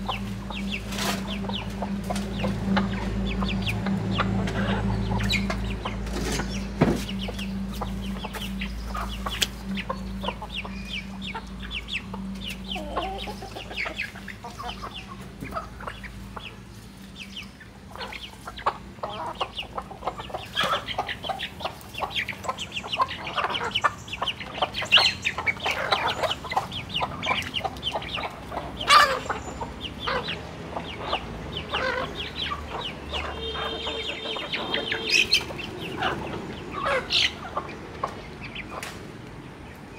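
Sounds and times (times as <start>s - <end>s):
low steady hum: 0.0s - 30.8s
chickens clucking: 0.0s - 39.9s.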